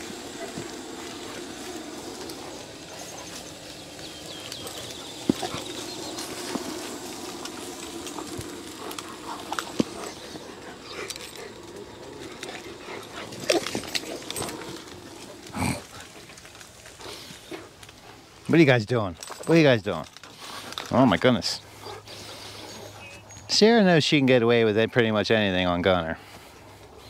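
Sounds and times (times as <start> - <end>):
dogs growling: 0.0 - 18.4, 20.1 - 23.5.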